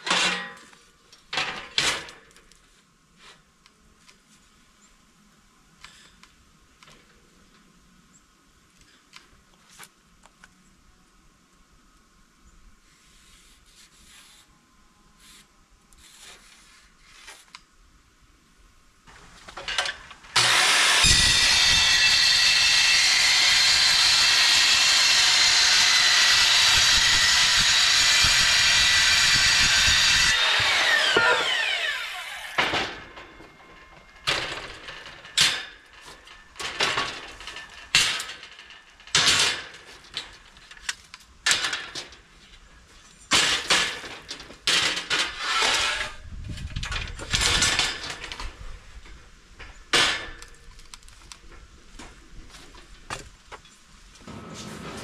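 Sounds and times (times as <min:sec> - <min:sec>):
sharp knocks and scrapes: 0:00.0 - 0:03.4, 0:15.2 - 0:17.6, 0:43.3 - 0:48.6, 0:51.5 - 0:55.0
grinder on steel: 0:19.8 - 0:39.8, 0:44.7 - 0:46.2
grinder spinning down whine: 0:20.4 - 0:32.7.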